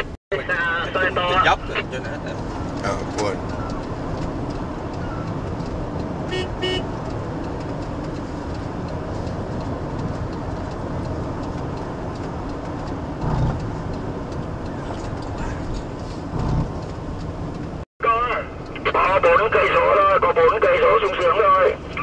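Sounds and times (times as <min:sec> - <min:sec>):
road and engine noise in car: 0:00.0 - 0:22.0
car horn toots: 0:06.2 - 0:07.0
low thump: 0:16.3 - 0:16.8.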